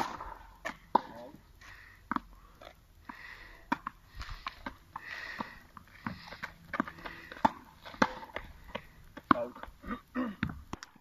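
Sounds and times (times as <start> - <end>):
tennis ball bouncing: 0.0 - 1.2, 5.4 - 9.7
breathy noises: 1.5 - 10.6.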